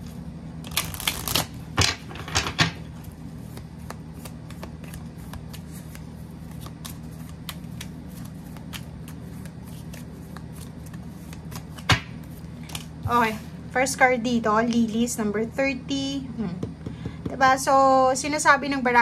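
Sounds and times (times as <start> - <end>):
cards being shuffled: 0.0 - 13.2.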